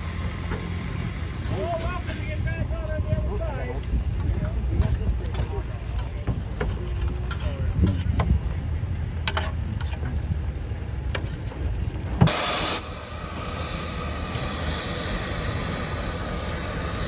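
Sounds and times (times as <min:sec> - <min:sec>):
loud steam hiss: 0:00.0 - 0:05.8, 0:12.1 - 0:17.0
steam engine low rumble: 0:00.0 - 0:17.0.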